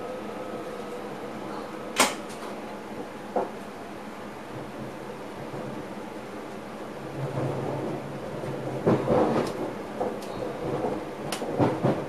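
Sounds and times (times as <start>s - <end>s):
faint hum: 0.0s - 7.1s
train cab background noise: 0.0s - 12.0s.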